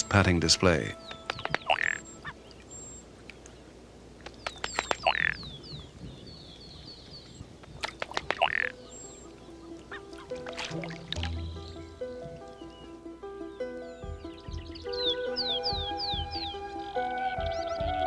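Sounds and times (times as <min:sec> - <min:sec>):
duck croaking call: 0:00.5 - 0:02.4, 0:05.0 - 0:05.4, 0:08.3 - 0:08.8.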